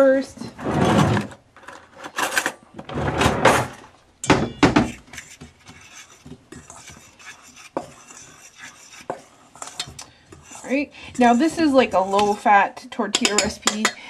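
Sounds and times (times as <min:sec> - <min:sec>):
flour scraping against bowl: 0:04.9 - 0:12.6
metal bowl clatter: 0:13.1 - 0:14.0.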